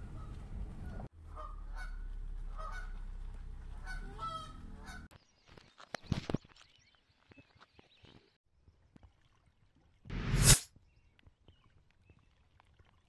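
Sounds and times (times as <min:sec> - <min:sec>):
geese honking: 0:01.2 - 0:05.1.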